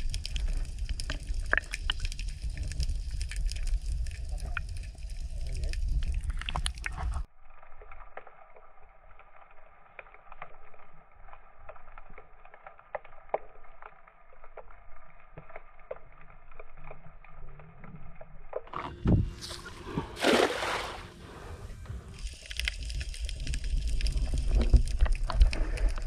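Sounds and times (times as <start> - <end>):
small underwater clicks and crackles: 0.0 - 19.6, 21.8 - 26.0.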